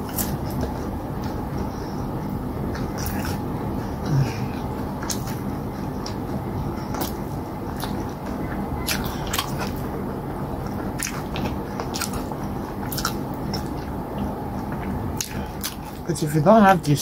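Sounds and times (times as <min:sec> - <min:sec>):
steady low hum: 0:00.0 - 0:17.0
wet chewing: 0:02.6 - 0:16.1
lip-smacks and clicks: 0:05.0 - 0:09.9.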